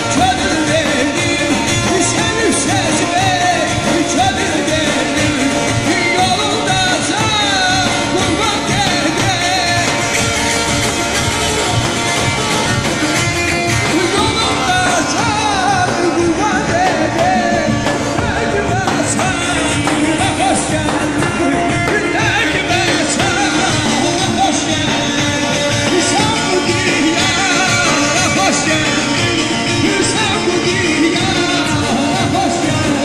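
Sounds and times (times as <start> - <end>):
person singing: 0.0 - 10.8, 12.6 - 33.0
hand drum beating: 0.0 - 33.0.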